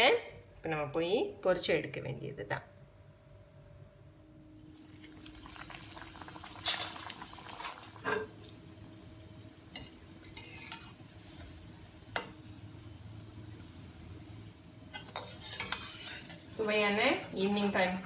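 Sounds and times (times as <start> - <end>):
food sizzling in hot oil: 4.6 - 18.0.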